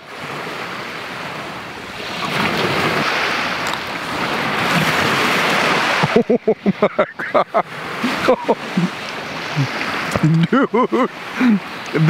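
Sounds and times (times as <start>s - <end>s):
waves washing onto shore: 0.0s - 12.0s.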